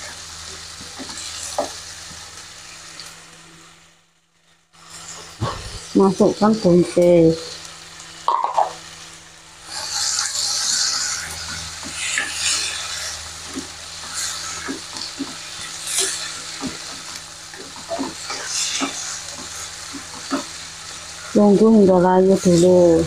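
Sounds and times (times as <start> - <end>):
vegetables sizzling in a pan: 0.0 - 23.0
spatula scraping a pan: 9.6 - 21.3.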